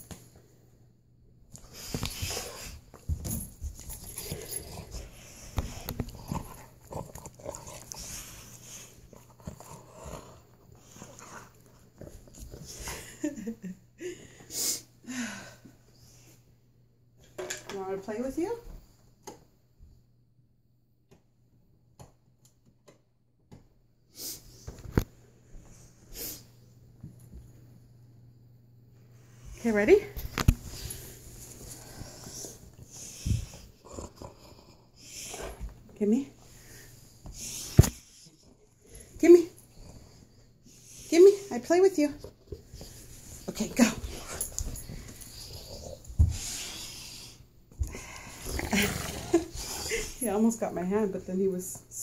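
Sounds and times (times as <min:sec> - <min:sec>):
dog play noises: 0:01.5 - 0:13.5, 0:29.4 - 0:50.4.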